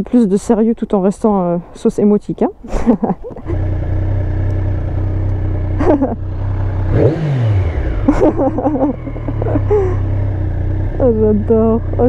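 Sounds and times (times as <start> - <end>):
motorcycle engine running: 3.4 - 12.0.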